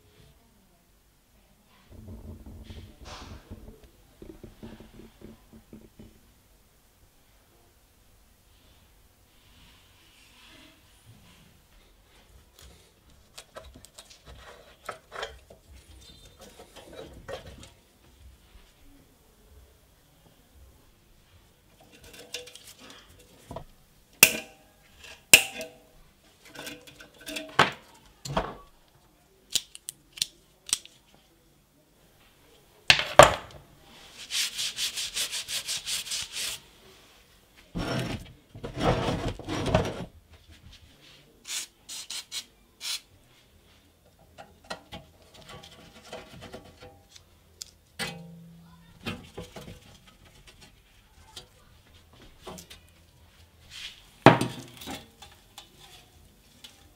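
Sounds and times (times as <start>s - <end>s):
rubbing on metal: 34.2s - 36.6s.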